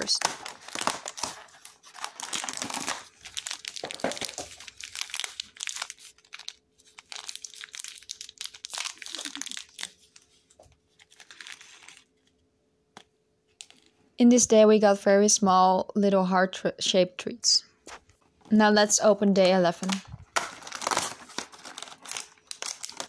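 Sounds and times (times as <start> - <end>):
cardboard tearing: 0.0 - 10.1, 20.4 - 23.0
plastic tray crinkling: 0.0 - 12.1, 19.5 - 23.0.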